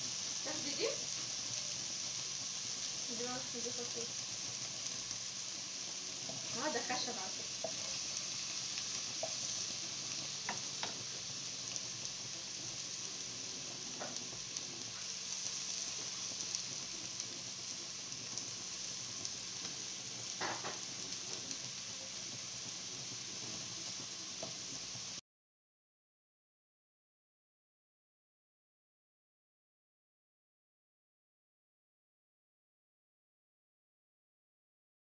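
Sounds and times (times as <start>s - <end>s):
food sizzling in oil: 0.0s - 25.2s.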